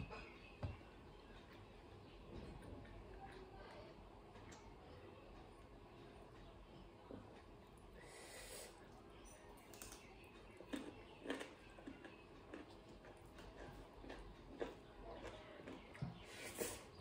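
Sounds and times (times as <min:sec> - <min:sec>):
cucumber crunching: 0:10.7 - 0:15.9.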